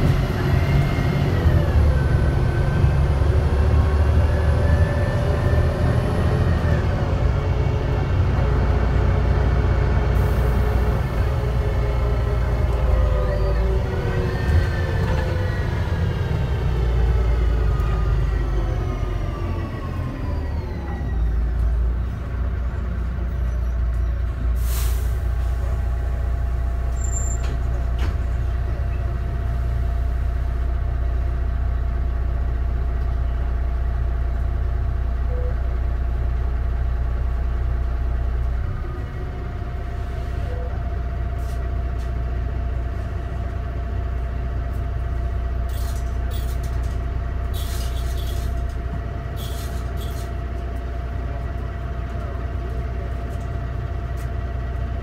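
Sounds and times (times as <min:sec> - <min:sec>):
bus drivetrain whine: 0:00.0 - 0:55.0
diesel engine idling: 0:00.0 - 0:55.0
short air hiss: 0:24.6 - 0:25.2.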